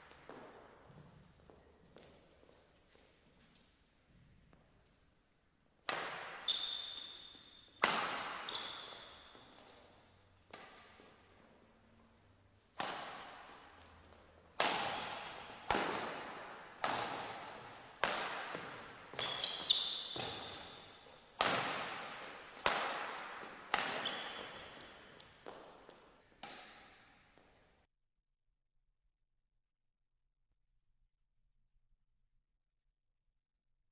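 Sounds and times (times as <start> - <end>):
badminton racquets hitting shuttlecock: 0.0 - 0.8, 5.8 - 11.5, 12.6 - 27.2
shoe squeaks on court: 0.0 - 1.3, 6.3 - 11.1, 14.8 - 27.0.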